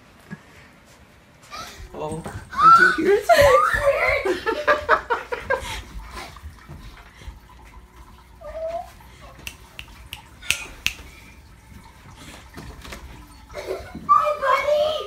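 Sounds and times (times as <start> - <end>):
footsteps on hardwood floor: 1.8 - 7.5.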